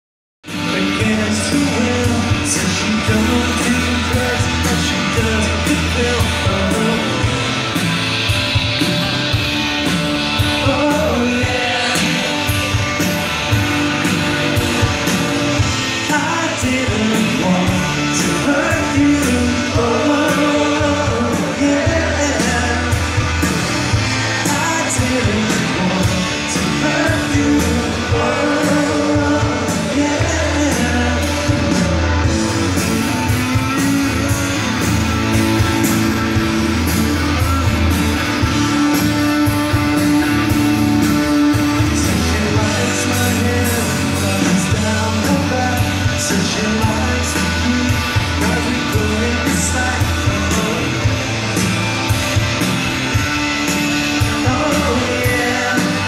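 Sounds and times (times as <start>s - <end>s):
bass guitar: 0.4s - 56.0s
drums: 0.4s - 56.0s
electric guitars: 0.4s - 56.0s
person singing: 0.6s - 7.8s, 10.4s - 12.7s, 14.2s - 23.1s, 24.3s - 34.8s, 38.6s - 51.3s, 54.2s - 56.0s.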